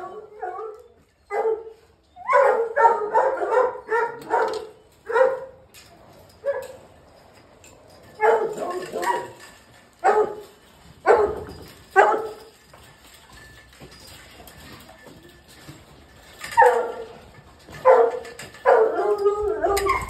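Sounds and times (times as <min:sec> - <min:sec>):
hounds barking: 0:02.3 - 0:05.6, 0:08.2 - 0:09.4, 0:10.0 - 0:10.4, 0:17.8 - 0:20.0.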